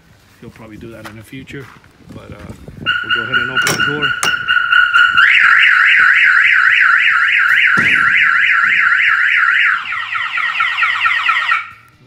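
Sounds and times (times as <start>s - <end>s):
alarm siren warbling: 2.9s - 11.9s.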